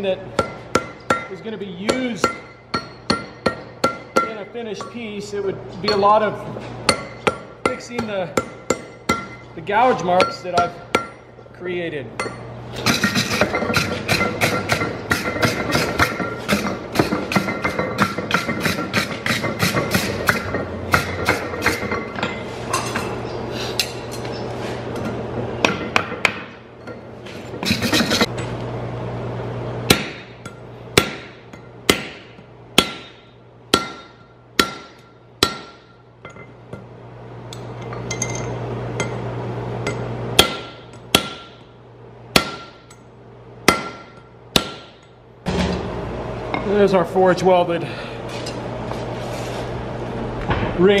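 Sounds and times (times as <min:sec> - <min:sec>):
hammer striking steel on anvil: 0:00.3 - 0:05.2, 0:05.8 - 0:06.3, 0:06.9 - 0:11.4, 0:12.2 - 0:23.1, 0:25.6 - 0:27.0, 0:29.9 - 0:36.9, 0:37.5 - 0:41.7, 0:42.3 - 0:45.8.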